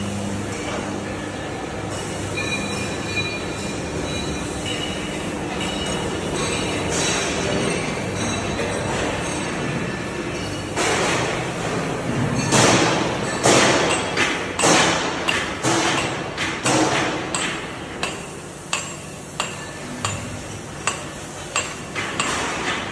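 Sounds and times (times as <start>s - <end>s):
sharp ringing knocks: 12.4s - 22.9s.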